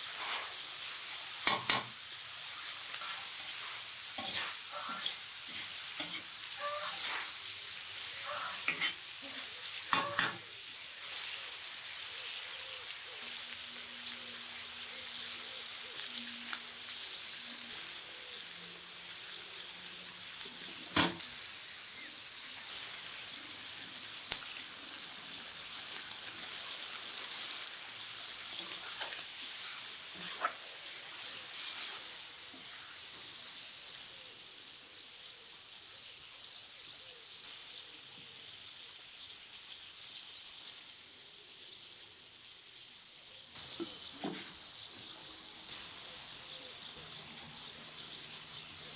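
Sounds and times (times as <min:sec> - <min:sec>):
spatula stirring in a pan: 0:00.0 - 0:18.4, 0:24.1 - 0:34.8
meat and peppers sizzling: 0:00.0 - 0:48.9.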